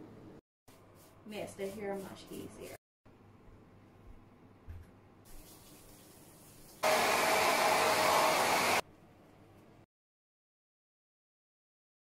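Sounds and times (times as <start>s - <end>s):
hair dryer blowing: 6.8s - 8.8s.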